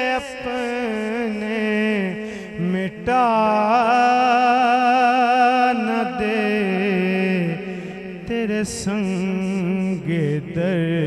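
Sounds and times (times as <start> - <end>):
man singing into a microphone: 0.0 - 11.0.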